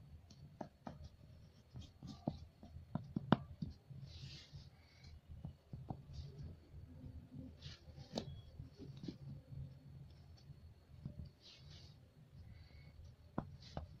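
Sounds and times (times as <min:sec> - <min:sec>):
crayon scraping and tapping on paper: 0:00.2 - 0:03.8, 0:13.3 - 0:14.0.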